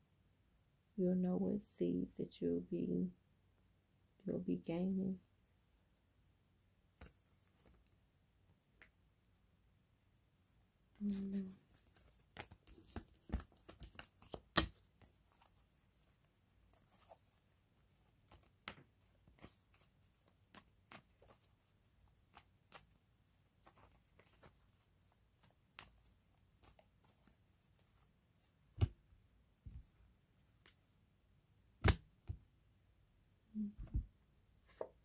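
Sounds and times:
cards shuffling: 11.1s - 29.0s.

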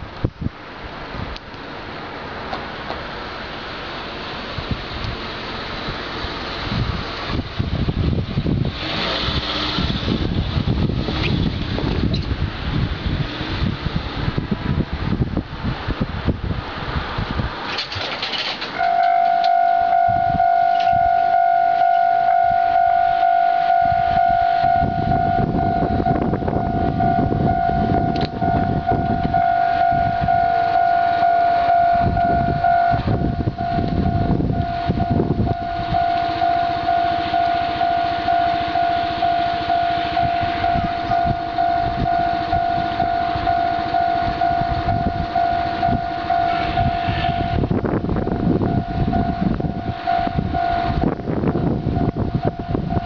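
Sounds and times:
diesel railcar engine rumble: 0.0s - 53.0s
level crossing warning bell ringing: 17.9s - 53.0s.

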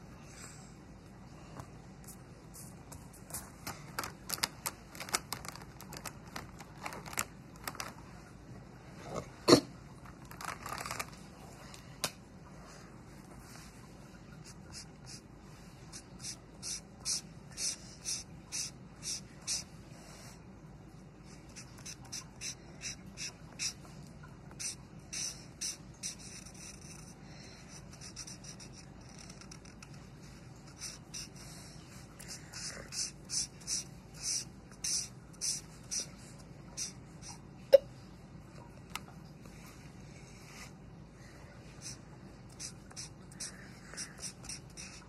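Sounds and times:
marker scratching on paper: 14.4s - 15.2s, 15.9s - 19.7s, 21.3s - 23.8s, 24.6s - 36.2s, 36.8s - 37.4s, 41.8s - 45.0s.

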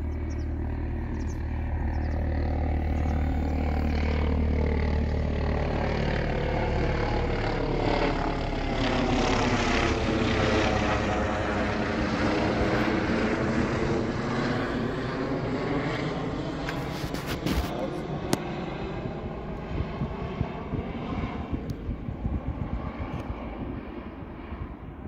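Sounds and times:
electric propeller whining: 0.0s - 25.0s
wind rumble on microphone: 16.6s - 25.0s.

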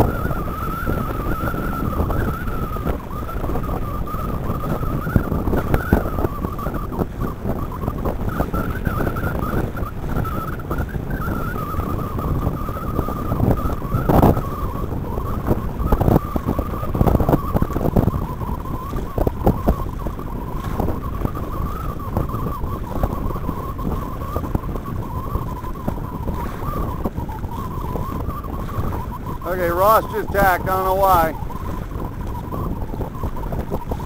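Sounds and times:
water slapping hull: 0.0s - 34.0s
wind buffeting microphone: 0.0s - 34.0s
water rushing past hulls: 24.0s - 34.0s.

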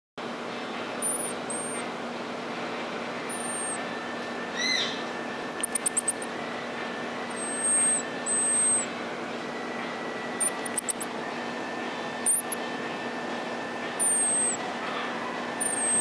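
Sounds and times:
steady low hum: 0.2s - 16.0s
marmoset sharp chirps: 1.0s - 1.9s, 3.2s - 3.8s, 4.6s - 6.3s, 7.3s - 8.9s, 10.4s - 11.1s, 12.2s - 12.6s, 14.0s - 14.6s, 15.6s - 16.0s
marmoset whistling calls: 1.0s - 1.9s, 3.2s - 6.4s, 7.2s - 8.9s, 10.3s - 11.2s, 12.1s - 12.7s, 13.8s - 16.0s.

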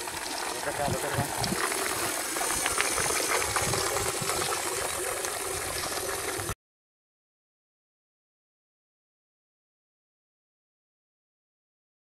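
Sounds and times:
water churning and splashing: 0.0s - 6.6s.

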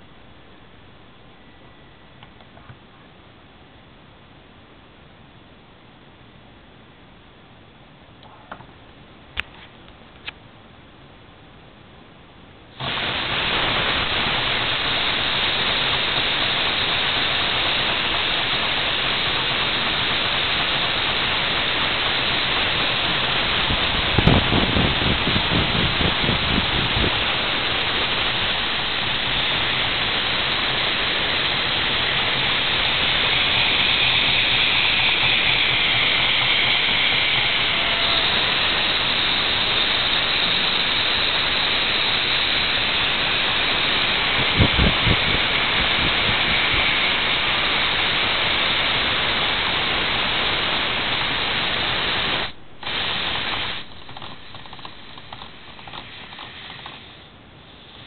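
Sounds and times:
air hissing through engine valves: 12.7s - 58.0s.

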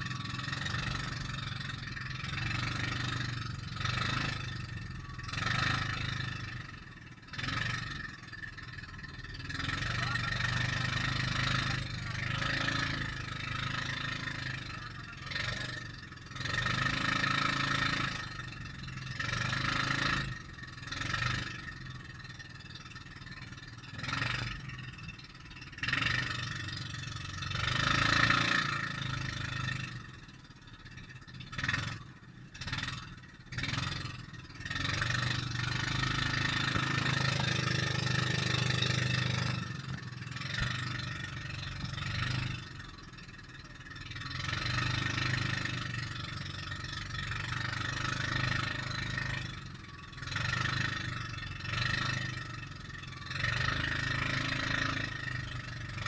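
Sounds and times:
boat engine droning: 0.0s - 18.0s.

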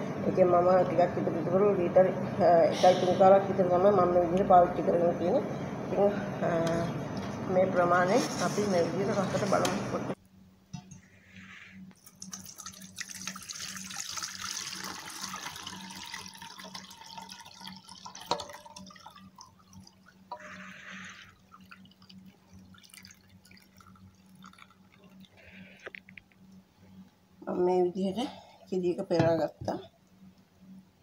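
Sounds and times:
milk pouring and splashing: 12.0s - 25.6s.

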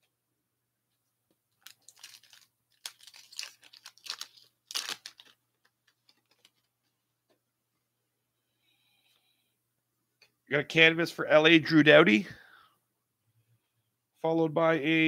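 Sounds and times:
foil wrapper tearing and crinkling: 1.6s - 6.7s.

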